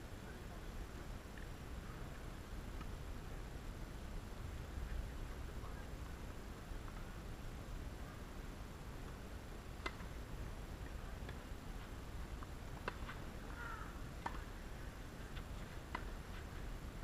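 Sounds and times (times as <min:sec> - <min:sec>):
faint outdoor background noise: 0:00.0 - 0:17.0
tennis ball bouncing: 0:09.8 - 0:10.0, 0:12.4 - 0:13.6, 0:14.2 - 0:14.5, 0:15.3 - 0:16.5.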